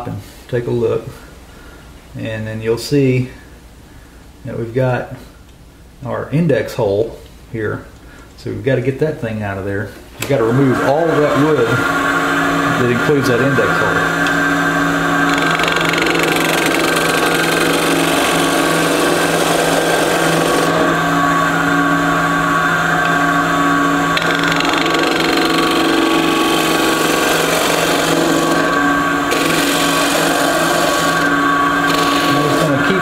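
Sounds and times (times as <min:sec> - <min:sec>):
lathe motor hum: 0:10.4 - 0:33.0
gouge shaving wood: 0:15.2 - 0:21.0, 0:24.2 - 0:33.0.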